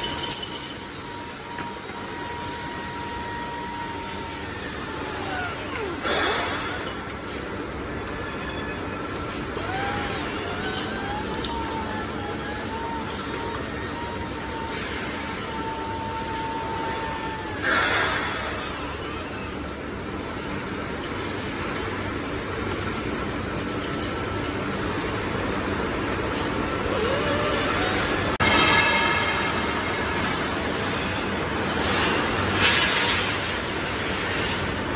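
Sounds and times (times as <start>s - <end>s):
strapping tool whine: 0.0s - 7.4s, 8.0s - 19.7s, 26.9s - 28.4s
steady machine hum: 0.0s - 34.9s
sharp hiss of air: 12.1s - 19.6s.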